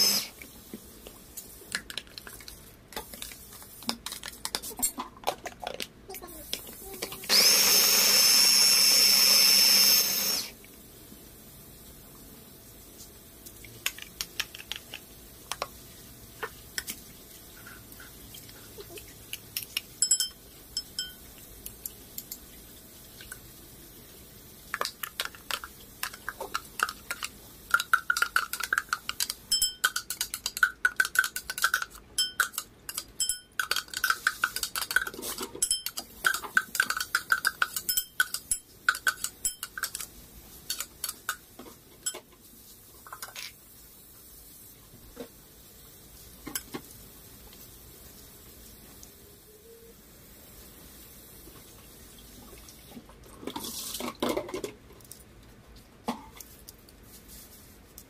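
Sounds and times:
ringing clinks: 20.0 - 21.2
spoon scraping a bowl: 26.5 - 40.1.

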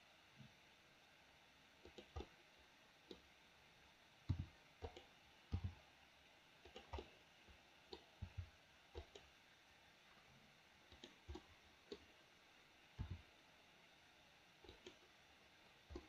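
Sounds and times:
mouse and keyboard clicks: 1.9 - 2.3, 4.3 - 5.7, 6.6 - 7.1, 7.9 - 9.3, 10.9 - 12.1, 13.0 - 13.2, 14.6 - 15.1.

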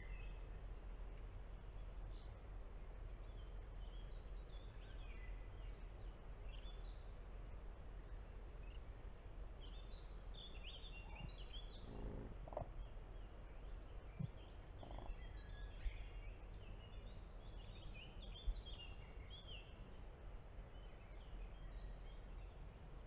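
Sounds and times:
low background noise: 0.0 - 23.0
songbirds chirping: 0.0 - 23.0
lower-pitched bird call: 11.0 - 12.8, 14.2 - 15.6.

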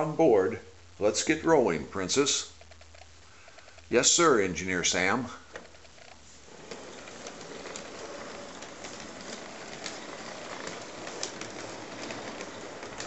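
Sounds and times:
sharp clicks: 2.6 - 3.9
model train whirring rumble: 6.6 - 13.0.

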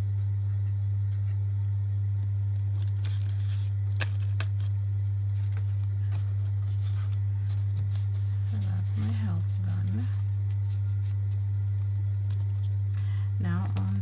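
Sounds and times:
steady low hum: 0.0 - 14.0
paper money and envelope rustling: 2.2 - 12.9, 13.5 - 14.0.

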